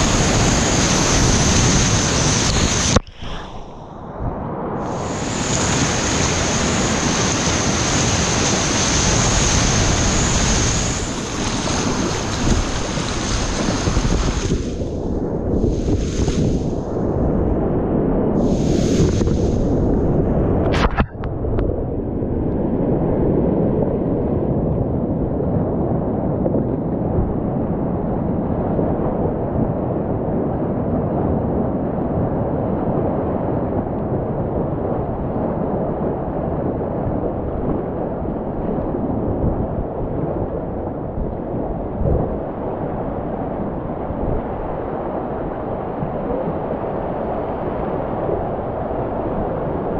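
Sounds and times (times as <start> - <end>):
whitewater rapids rushing: 4.9 - 14.8.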